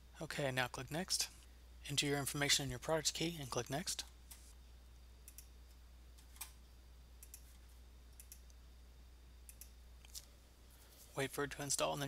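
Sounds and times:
low electrical hum: 0:00.0 - 0:12.0
computer mouse clicks: 0:05.2 - 0:05.5, 0:07.2 - 0:07.6, 0:08.2 - 0:08.6, 0:09.5 - 0:10.3.

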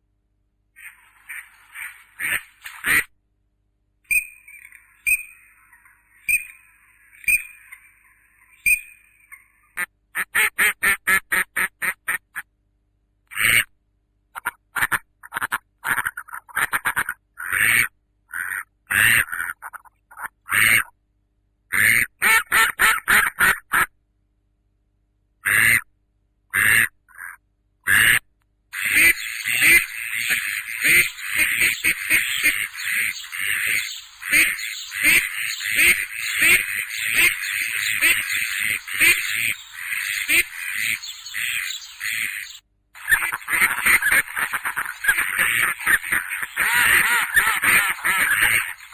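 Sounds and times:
duckling peeping: 0:28.8 - 0:48.9.

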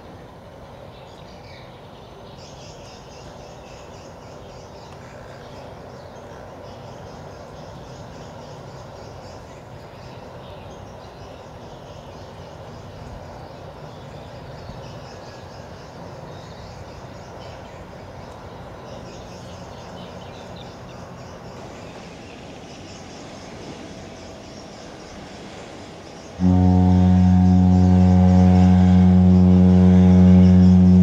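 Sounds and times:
ship's horn deep blast: 0:26.2 - 0:31.0.

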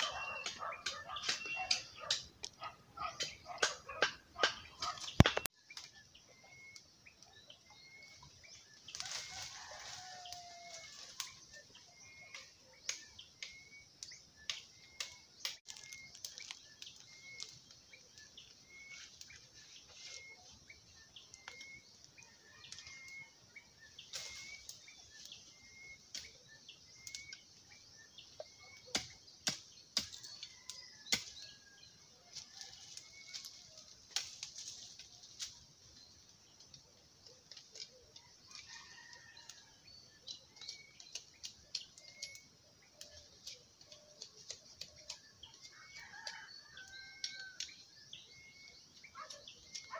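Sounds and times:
bamboo stems knocking and cracking: 0:00.0 - 0:06.8, 0:08.9 - 0:20.3, 0:28.3 - 0:31.6, 0:32.3 - 0:35.7, 0:36.4 - 0:39.6, 0:40.3 - 0:47.9.

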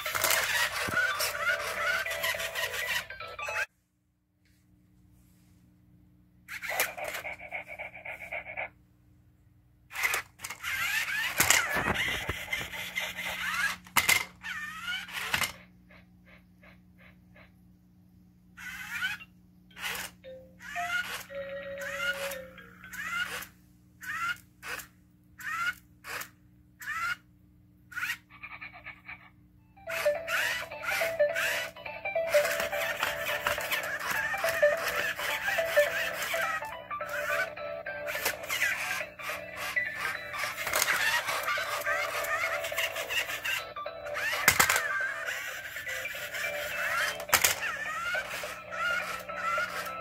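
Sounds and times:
toy robot motors whirring: 0:00.0 - 0:03.7, 0:06.5 - 0:08.7, 0:09.9 - 0:16.0, 0:18.6 - 0:27.2, 0:27.9 - 0:29.3, 0:29.9 - 0:50.0
plastic gears and limbs clattering: 0:09.9 - 0:15.6, 0:44.2 - 0:45.0, 0:46.8 - 0:50.0
jingly electronic tune: 0:20.3 - 0:23.2, 0:29.8 - 0:47.2.

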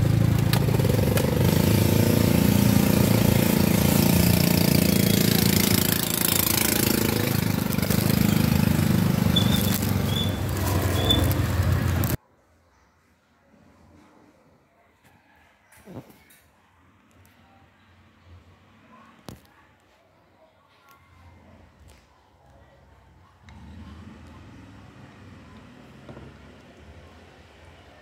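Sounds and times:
small engine running: 0:00.0 - 0:12.2
plastic bags rustling: 0:05.4 - 0:12.2.

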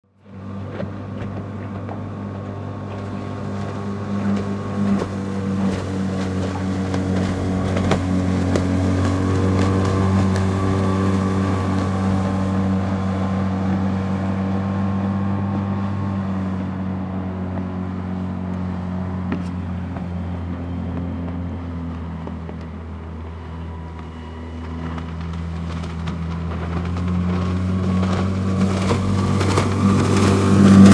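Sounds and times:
outboard motor running at high speed: 0:00.1 - 0:30.9.

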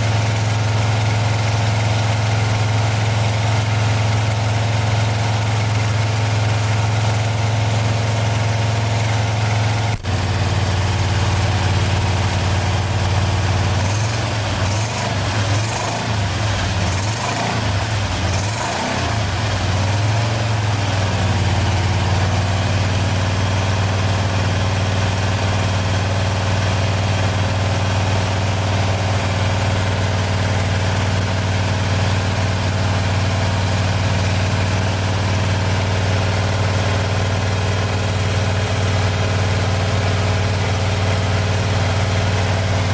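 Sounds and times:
car engine idling and revving: 0:00.0 - 0:42.9.

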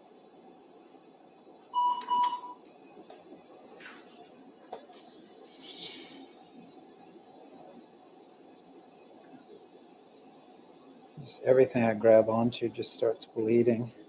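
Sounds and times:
electronic activation beep: 0:01.8 - 0:02.6
suction tip hiss: 0:03.7 - 0:14.0.

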